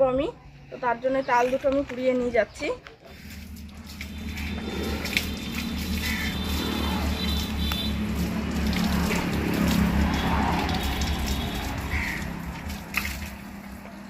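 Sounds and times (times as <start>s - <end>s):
water trickling in a drain: 3.0s - 14.0s.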